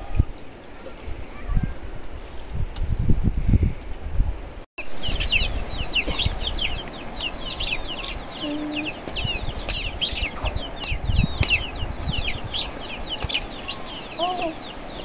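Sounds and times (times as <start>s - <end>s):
chicks peeping: 4.8s - 15.0s
hen call: 5.3s - 15.0s.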